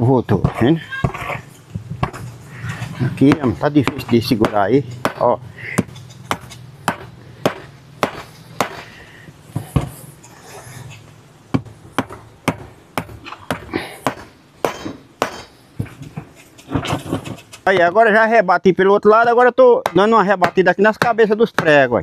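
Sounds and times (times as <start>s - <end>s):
hammer striking nails: 3.3s - 8.9s, 11.5s - 15.5s, 19.8s - 21.8s.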